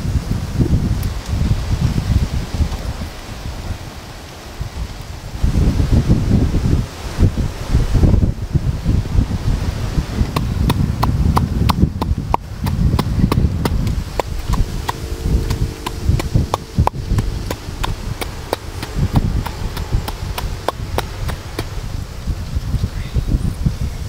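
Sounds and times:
low wind: 0.0 - 24.0
pestle pounding in wooden mortar: 10.3 - 21.7.

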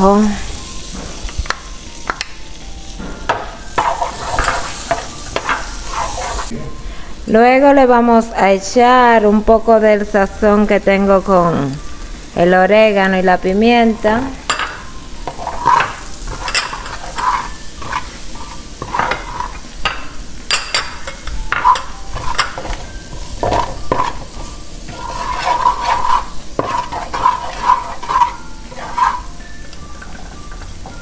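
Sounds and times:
butter and garlic frying: 0.0 - 6.5, 11.0 - 31.0
wooden spoon scraping frying pan: 3.7 - 6.5, 15.3 - 19.8, 21.5 - 29.4.

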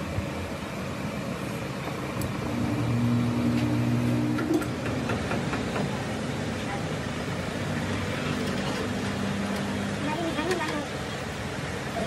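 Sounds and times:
low mechanical hum: 0.0 - 12.0
machine-shop noise: 2.2 - 11.3.

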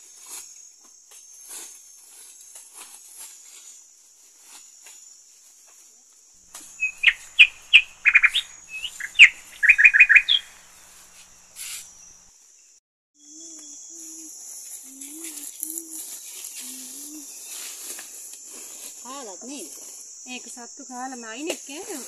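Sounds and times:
high insect buzz: 0.0 - 22.0
songbird chirping and whistling: 6.5 - 12.2, 13.2 - 18.0.

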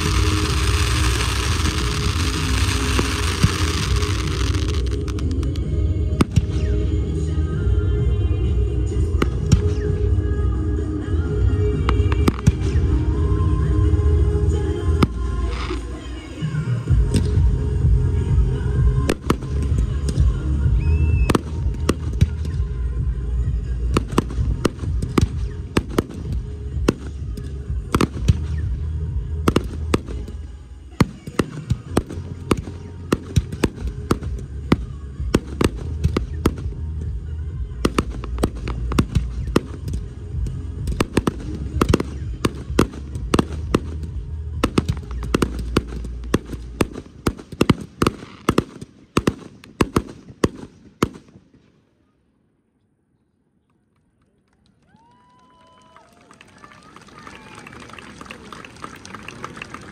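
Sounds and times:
fireworks bangs and crackles: 0.0 - 6.9, 9.0 - 10.1, 11.8 - 13.1, 14.8 - 51.7
music with heavy bass: 0.0 - 16.0, 16.8 - 30.2, 32.0 - 46.9.

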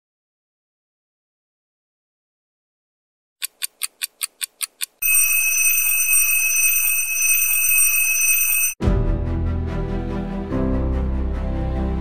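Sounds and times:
alarm clock electronic ringing: 5.0 - 8.8
alarm clock quick beeps: 5.0 - 8.8.

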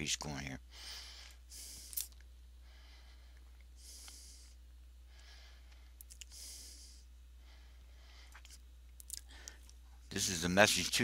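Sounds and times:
low electrical hum: 0.0 - 11.0
soft breaths into microphone: 0.7 - 8.6.

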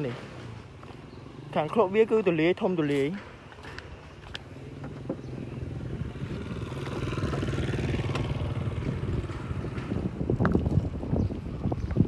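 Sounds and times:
vehicle engine running: 4.5 - 10.3.

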